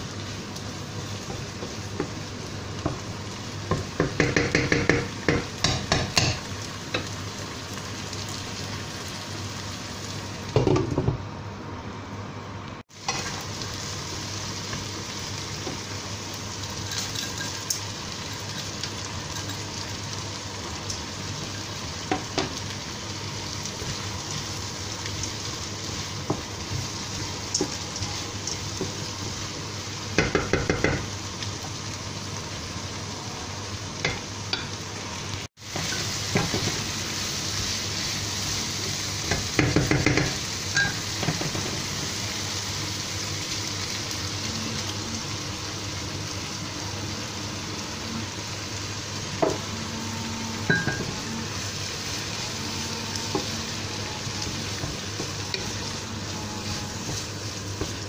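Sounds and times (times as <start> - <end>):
vegetables sizzling in a frying pan: 0.0 - 58.0
wooden spatula scraping a pan: 49.9 - 58.0.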